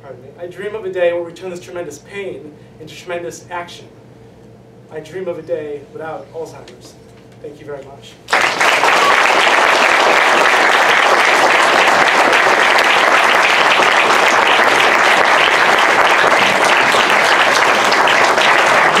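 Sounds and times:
audience applauding: 8.3s - 19.0s.

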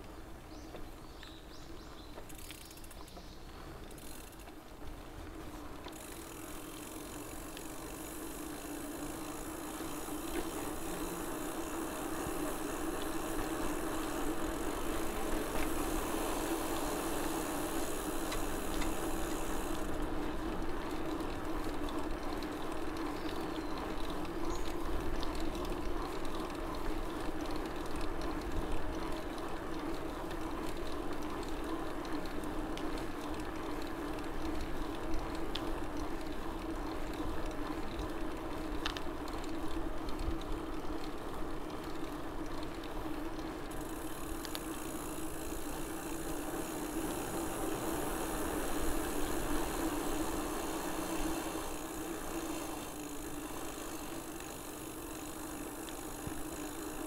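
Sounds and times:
bicycle tyre hum on pavement: 0.0s - 57.0s
high hiss: 6.1s - 20.0s, 43.8s - 57.0s.

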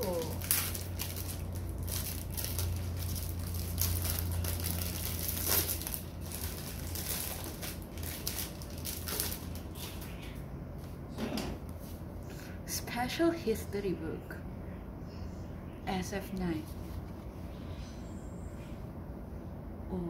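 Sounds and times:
plastic packaging crinkling: 0.0s - 10.4s.

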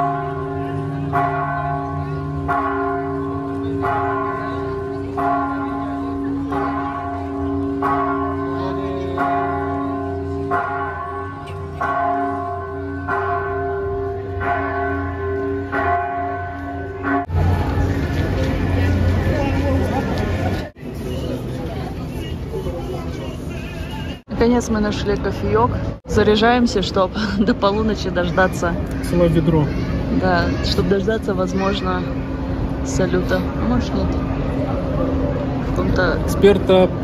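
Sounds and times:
church bell tolling: 0.0s - 19.8s.

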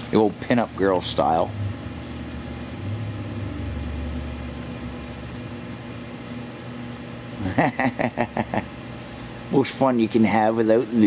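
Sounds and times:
man talking: 0.0s - 1.5s, 9.5s - 11.0s
machine humming: 0.0s - 11.0s.

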